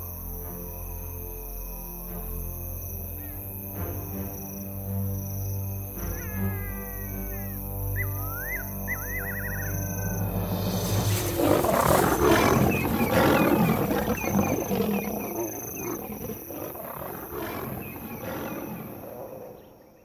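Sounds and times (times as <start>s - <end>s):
faint insect-like chirps: 1.4s - 20.0s
lions growling and snarling: 8.9s - 20.0s.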